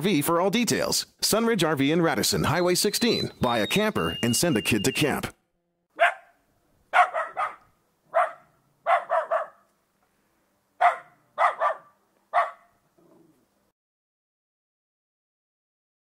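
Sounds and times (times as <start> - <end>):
dog barking: 6.0 - 9.7, 10.8 - 12.8.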